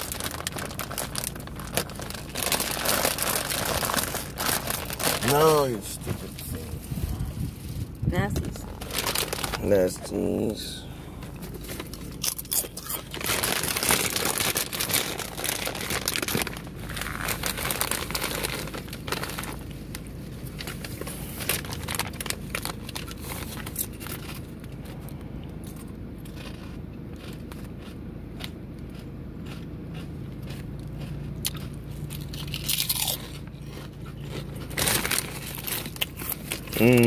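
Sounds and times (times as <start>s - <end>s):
chip bag crinkling: 0.0s - 6.0s, 8.6s - 10.8s, 11.5s - 24.7s, 31.4s - 37.0s.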